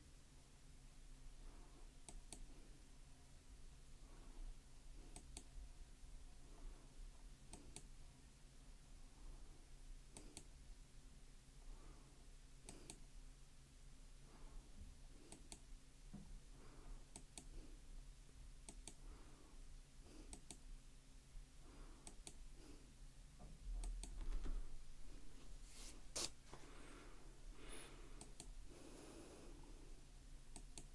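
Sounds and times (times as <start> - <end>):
computer mouse clicks: 2.0 - 2.5, 5.1 - 5.5, 7.5 - 7.9, 10.1 - 10.5, 12.6 - 13.1, 15.3 - 15.7, 17.1 - 17.6, 18.6 - 19.0, 20.2 - 20.6, 22.0 - 22.4, 23.8 - 24.3, 28.2 - 28.6, 30.5 - 30.9.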